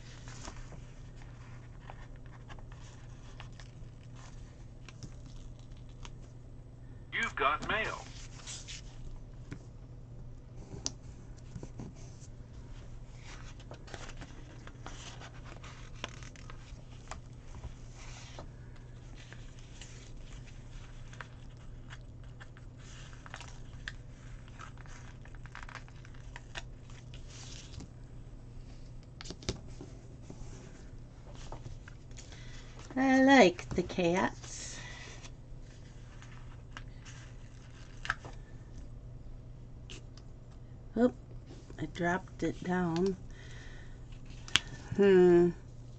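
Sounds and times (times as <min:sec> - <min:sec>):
steady low hum: 0:00.0 - 0:45.9
paper stickers rustling: 0:19.1 - 0:27.9.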